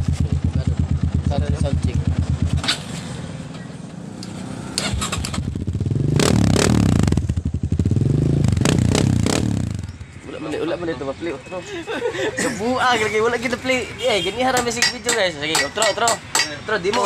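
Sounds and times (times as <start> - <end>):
motorcycle engine revving: 0.0 - 10.3.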